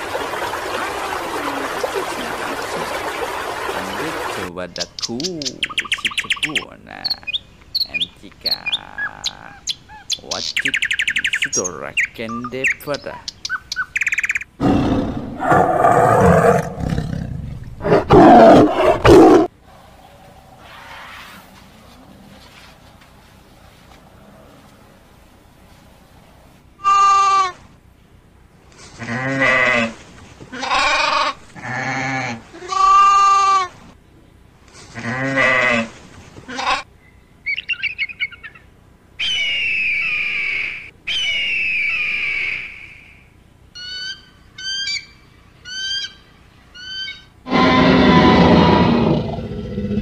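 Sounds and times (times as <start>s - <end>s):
wavering animal calls: 3.8s - 11.6s, 26.8s - 27.6s, 46.8s - 50.0s
eagle chirping: 4.7s - 14.5s, 37.0s - 46.2s, 46.8s - 47.4s
loud animal roar: 14.6s - 19.5s, 47.5s - 50.0s
eagle screeching: 39.2s - 43.1s, 46.8s - 49.8s.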